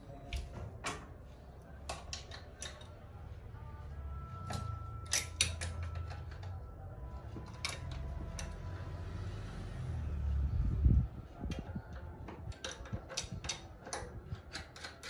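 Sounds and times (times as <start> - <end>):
metallic clicks and knocks: 1.8 - 3.0, 4.5 - 6.6, 11.5 - 15.0.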